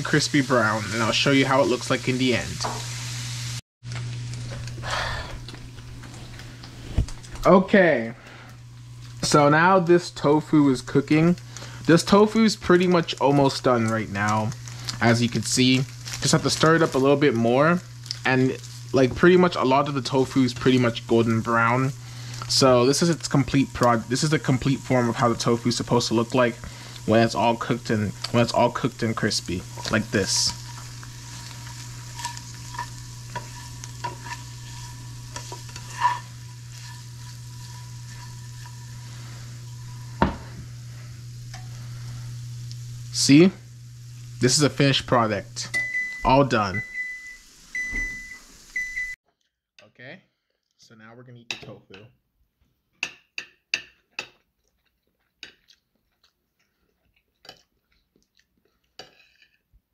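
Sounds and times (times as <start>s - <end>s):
tofu sizzling in oil: 0.0s - 4.5s, 10.6s - 49.0s
plastic spatula scraping pan: 29.8s - 38.9s
person chewing crispy food: 54.4s - 59.4s.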